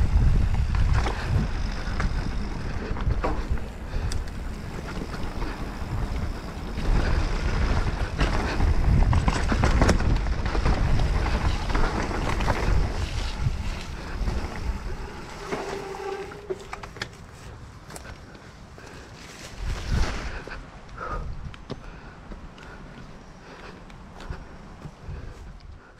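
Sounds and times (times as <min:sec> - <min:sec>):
bike rattling and knocking: 0:00.0 - 0:18.1
wind buffeting microphone: 0:00.0 - 0:18.3, 0:18.9 - 0:25.9
bike tyre noise on trail: 0:00.0 - 0:25.9.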